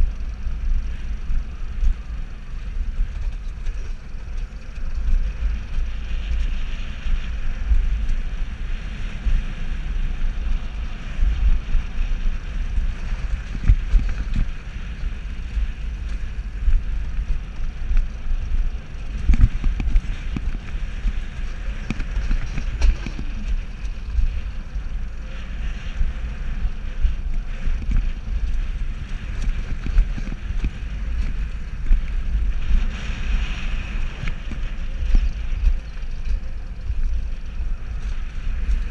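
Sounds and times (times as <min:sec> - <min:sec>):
wheels rumbling on rails: 0:00.0 - 0:38.9
wind buffeting microphone: 0:00.0 - 0:38.9.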